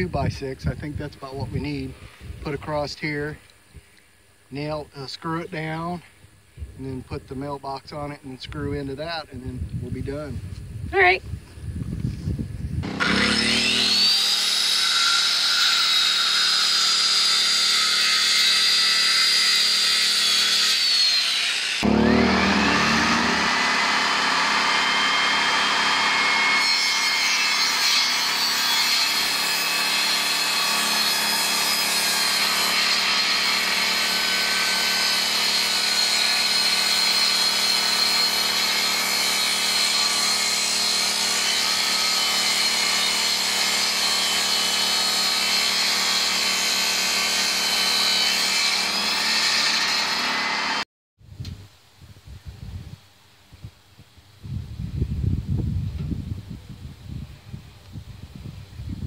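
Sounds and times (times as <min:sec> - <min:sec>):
saw blade cutting wood: 0:12.8 - 0:50.8
table saw motor whine: 0:12.8 - 0:50.8.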